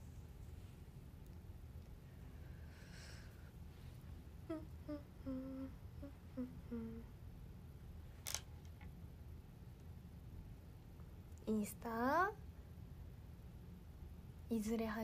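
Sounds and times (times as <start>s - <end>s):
woman humming a tune: 4.4s - 7.2s.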